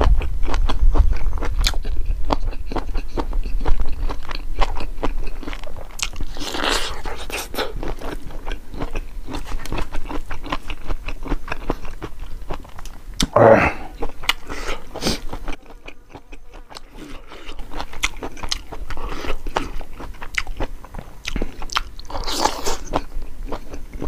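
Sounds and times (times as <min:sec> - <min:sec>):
person chewing food: 0:00.0 - 0:24.0
breath or slurping rush: 0:06.3 - 0:07.8, 0:13.6 - 0:15.3.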